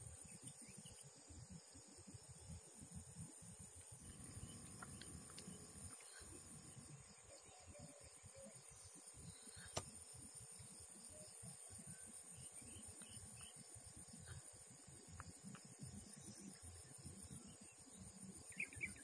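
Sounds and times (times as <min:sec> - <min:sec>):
insects trilling: 0:00.0 - 0:19.0
sharp click: 0:09.7 - 0:09.9.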